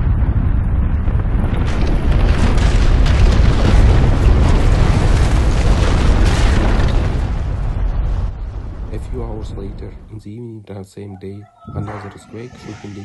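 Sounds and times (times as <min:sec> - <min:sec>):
earthquake rumbling roar: 0:00.0 - 0:10.1.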